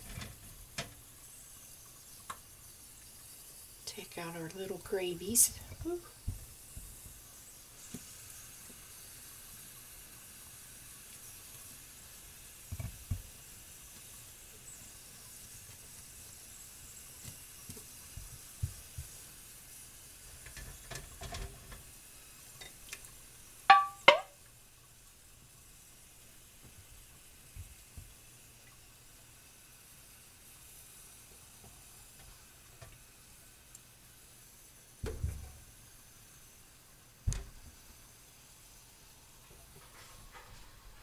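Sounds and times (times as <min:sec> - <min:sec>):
faint steady sizzle: 0:00.0 - 0:41.0
glass jars knocking: 0:23.7 - 0:24.3
metal clinking on glass: 0:23.7 - 0:24.3.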